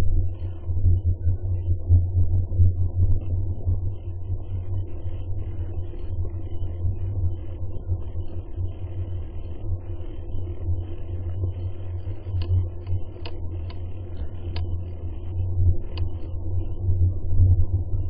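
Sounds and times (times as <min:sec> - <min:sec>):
light clicks: 0:12.2 - 0:15.0.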